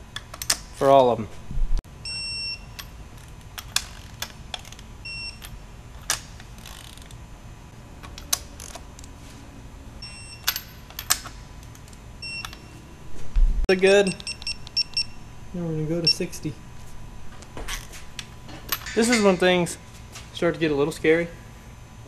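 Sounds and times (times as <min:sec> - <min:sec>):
torque wrench beeping: 0:02.0 - 0:03.0, 0:05.0 - 0:05.6, 0:10.0 - 0:10.8, 0:12.2 - 0:12.8, 0:13.7 - 0:15.2
ratchet clicking: 0:06.0 - 0:07.2.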